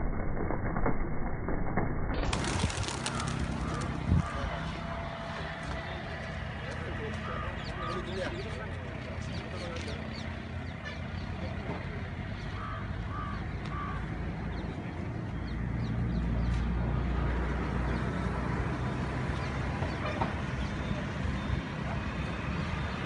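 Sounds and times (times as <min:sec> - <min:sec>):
low rumble: 0:00.0 - 0:06.6
faint voices: 0:02.7 - 0:14.0.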